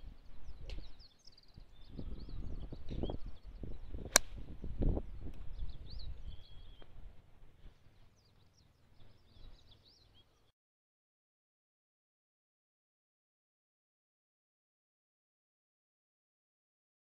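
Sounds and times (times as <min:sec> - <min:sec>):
birds chirping: 0:00.0 - 0:07.0, 0:07.6 - 0:10.5
wind rumble on microphone: 0:00.0 - 0:07.8
golf club striking ball: 0:04.1 - 0:04.4.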